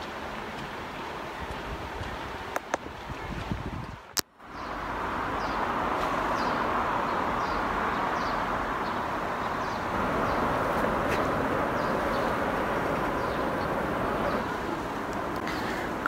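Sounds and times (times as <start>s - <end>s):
outdoor background rush: 0.0s - 16.0s
small birds chirping: 4.4s - 16.0s.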